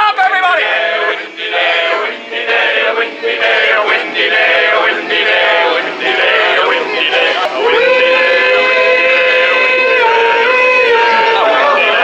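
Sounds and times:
song with man singing: 5.9 - 12.0.

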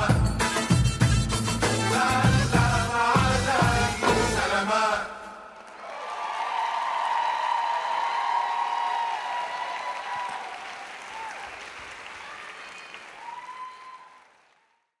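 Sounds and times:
audience applause: 5.6 - 15.0.

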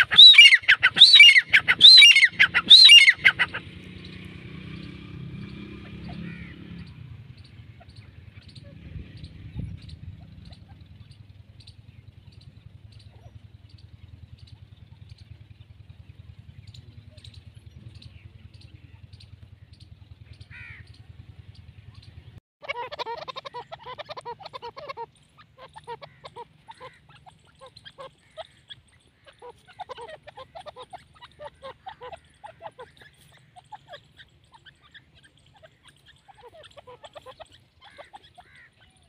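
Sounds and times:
gliding bird call: 0.0 - 4.9, 22.0 - 39.0
francolins calling: 0.0 - 39.0
harsh chattering bird calls: 0.0 - 39.0.

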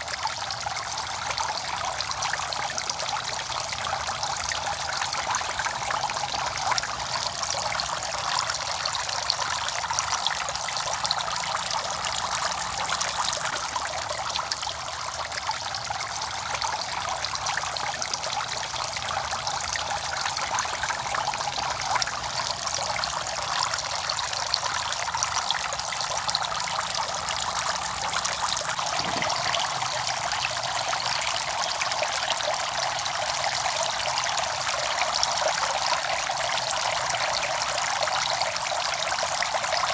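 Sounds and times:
fountain water splashing into pond: 0.0 - 39.9.

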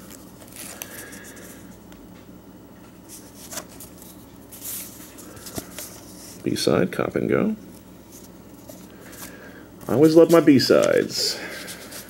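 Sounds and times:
paper sleeve rustling: 0.0 - 1.6, 3.1 - 6.4, 8.1 - 12.0.

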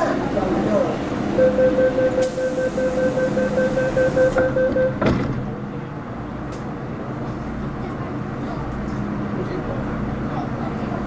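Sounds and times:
train low hum: 0.0 - 11.0
rapid door warning beeps: 1.4 - 5.1
sliding doors closing knock: 4.3 - 5.6.

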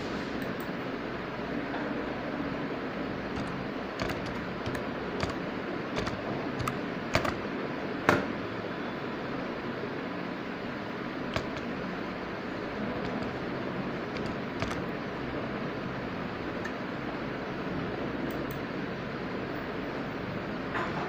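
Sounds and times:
computer keyboard typing: 3.3 - 5.4, 6.0 - 7.4, 11.3 - 11.8, 12.9 - 13.5, 14.1 - 14.9.

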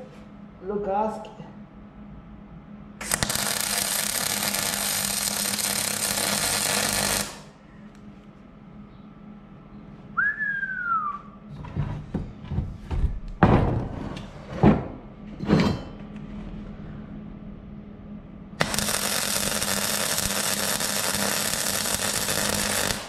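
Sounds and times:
welder arc hissing: 3.0 - 7.5, 18.6 - 23.0.

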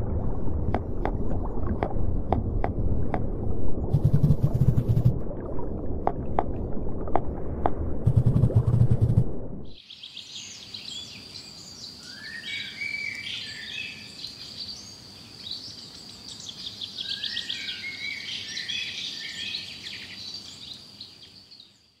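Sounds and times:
birds singing and trilling: 9.8 - 21.8.

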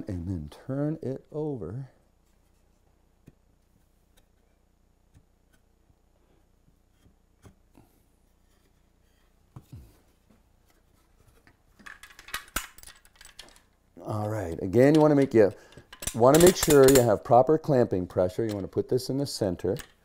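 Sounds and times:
wooden parts knocking: 11.8 - 17.4, 18.0 - 18.8, 19.6 - 20.0.

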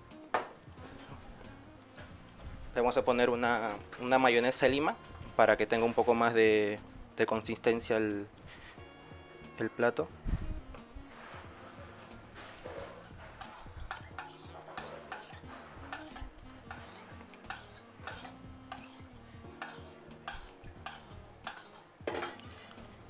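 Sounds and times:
whisk scraping metal bowl: 12.4 - 22.9.

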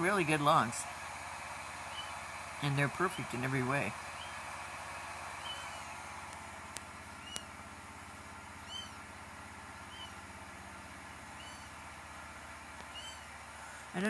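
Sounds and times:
steady low hum: 0.0 - 14.0
sharp clicks: 5.4 - 7.5.

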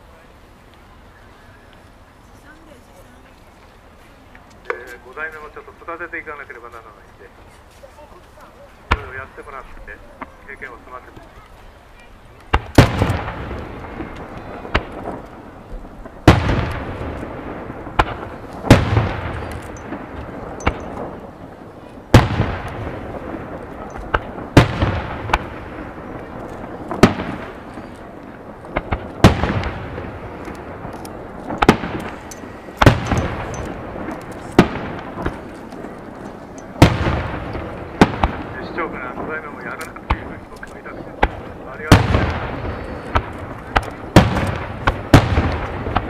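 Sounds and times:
small firework pops: 12.4 - 21.2, 23.6 - 38.5, 39.2 - 46.0
firework shells bursting: 12.4 - 46.0.

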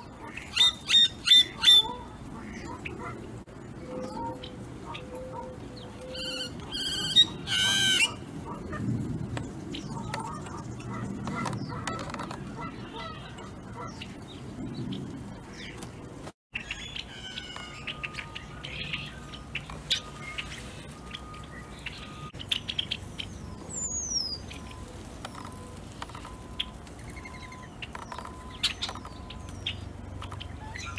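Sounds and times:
harsh blackbird calls: 0.1 - 8.8, 9.7 - 15.8, 26.5 - 30.9.

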